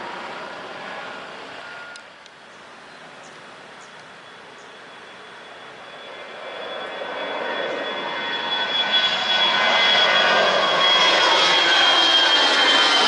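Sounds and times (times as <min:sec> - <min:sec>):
jet airliner engines climbing: 0:00.0 - 0:13.0.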